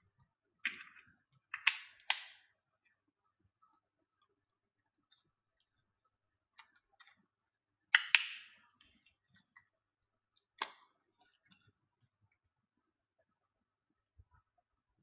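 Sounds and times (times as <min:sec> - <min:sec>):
plastic box clicks and taps: 0:01.6 - 0:02.4, 0:08.0 - 0:08.6
plastic lid snapping open: 0:01.6 - 0:02.4.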